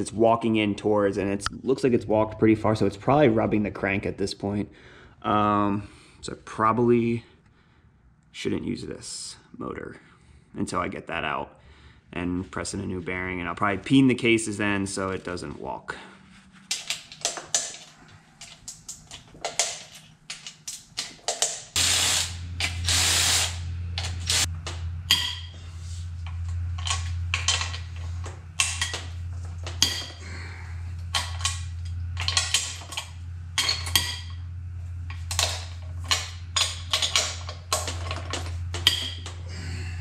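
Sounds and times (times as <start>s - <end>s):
steady low hum: 0.0s - 40.0s
hiss: 21.8s - 23.6s
metal parts clinking: 26.8s - 30.2s, 31.1s - 34.4s, 35.1s - 39.4s.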